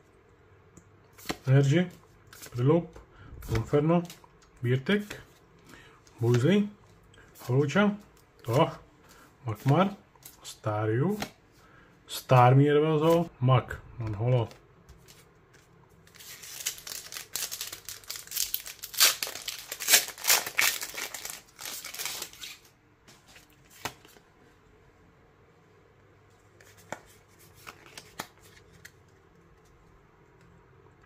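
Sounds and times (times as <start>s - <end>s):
foil wrapper crinkling: 16.0s - 22.7s.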